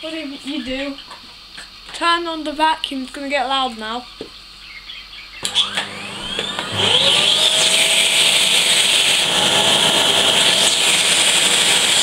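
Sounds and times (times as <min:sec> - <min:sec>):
vacuum cleaner running: 0:05.4 - 0:12.0.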